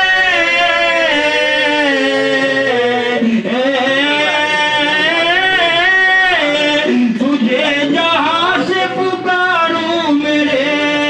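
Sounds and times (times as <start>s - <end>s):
man singing long wavering notes: 0.0s - 11.0s.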